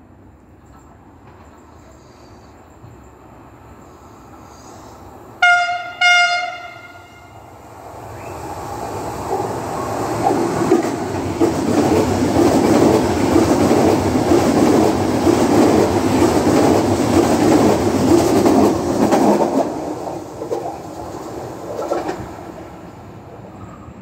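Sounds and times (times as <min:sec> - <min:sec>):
train wheels rushing on rails: 0:00.6 - 0:24.0.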